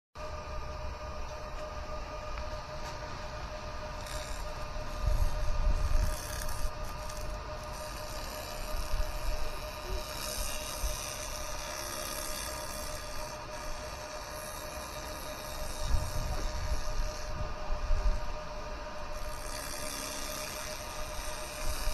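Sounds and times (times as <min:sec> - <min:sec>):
electrical hum: 0:00.2 - 0:21.9
laser cleaning hiss: 0:03.1 - 0:17.3, 0:19.0 - 0:21.9.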